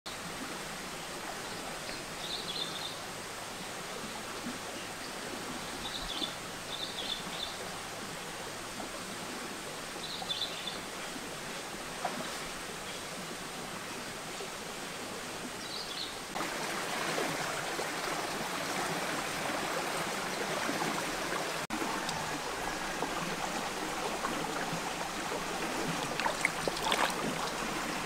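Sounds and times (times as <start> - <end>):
stream rushing over rocks: 16.2 - 28.0.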